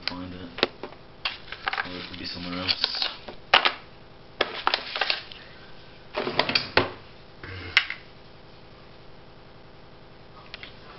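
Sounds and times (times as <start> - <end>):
plastic packets crinkling: 1.3 - 3.8, 4.4 - 5.5.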